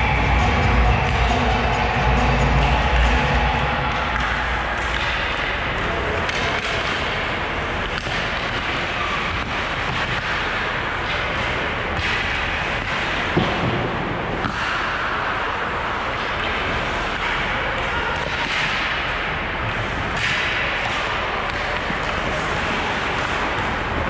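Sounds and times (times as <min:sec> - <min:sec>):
skates scraping ice: 0:04.2 - 0:24.0.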